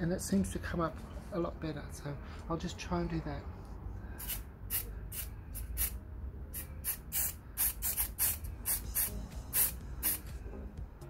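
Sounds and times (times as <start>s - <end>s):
spray paint can hissing bursts: 4.2s - 10.3s.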